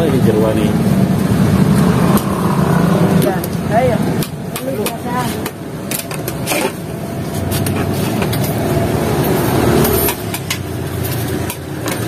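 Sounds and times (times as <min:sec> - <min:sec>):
vehicle passing by: 0:00.0 - 0:04.2, 0:06.8 - 0:12.0.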